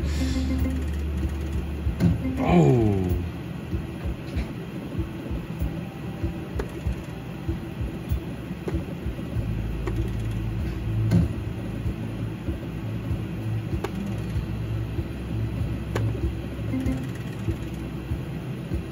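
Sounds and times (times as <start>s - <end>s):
slot machine reels spinning: 0.0s - 2.6s, 9.8s - 10.6s, 13.8s - 14.4s, 16.6s - 18.0s
sharp clicks: 6.6s - 7.2s, 13.8s - 14.4s.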